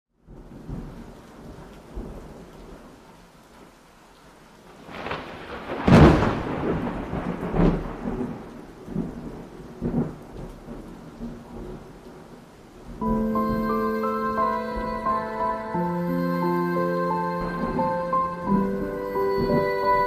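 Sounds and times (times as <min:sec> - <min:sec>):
rain hissing: 0:00.2 - 0:20.0
rolling thunder: 0:04.8 - 0:20.0.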